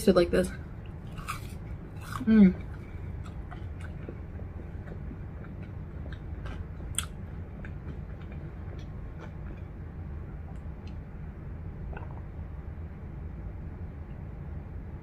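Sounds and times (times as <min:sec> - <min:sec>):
low background noise: 0:00.0 - 0:15.0
person chewing food: 0:00.8 - 0:11.0, 0:11.9 - 0:12.2
wet mouth clicks: 0:11.9 - 0:12.2.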